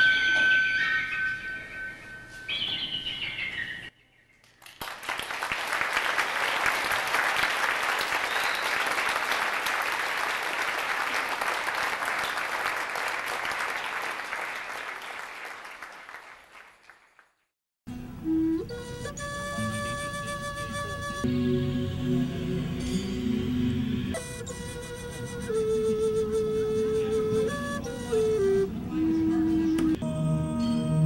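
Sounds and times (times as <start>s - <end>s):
audience applauding: 4.5s - 17.4s.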